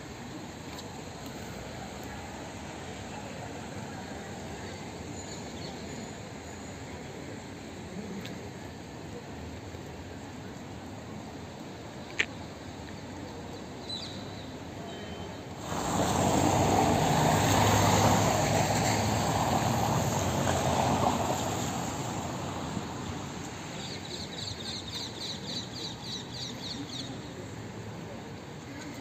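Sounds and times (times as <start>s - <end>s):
tyres hissing on wet cobbles: 15.5s - 26.2s.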